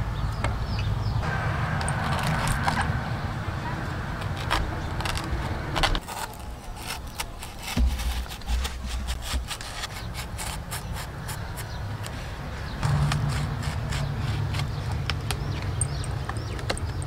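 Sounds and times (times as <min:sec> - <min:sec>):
knife slicing banana trunk: 0:04.2 - 0:11.7, 0:12.8 - 0:14.8.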